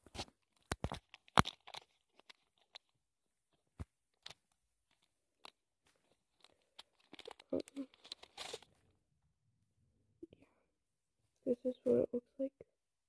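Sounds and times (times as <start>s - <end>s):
plastic wrapper crinkling and tearing: 0.1s - 2.9s, 4.1s - 8.8s.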